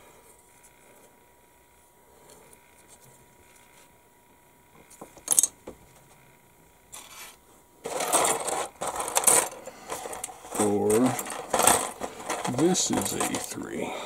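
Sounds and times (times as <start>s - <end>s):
plastic parts clattering and scraping: 6.9s - 13.8s.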